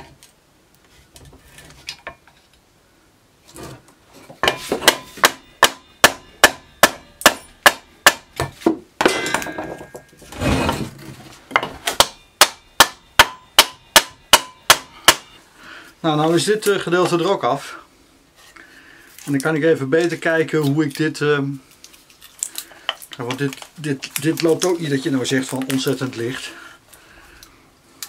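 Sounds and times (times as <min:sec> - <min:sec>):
scraping rustle: 0:10.2 - 0:11.5.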